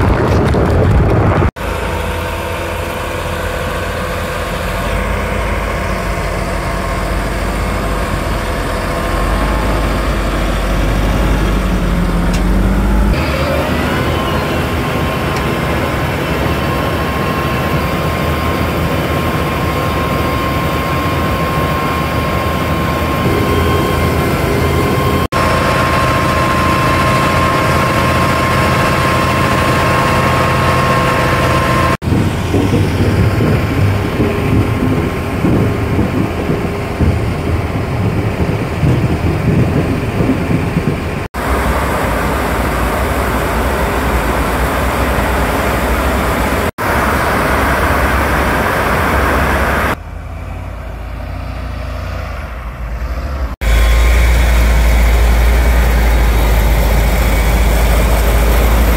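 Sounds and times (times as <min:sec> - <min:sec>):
tractor diesel engine hum: 0:00.0 - 0:58.9
steady high whine: 0:01.2 - 0:37.4.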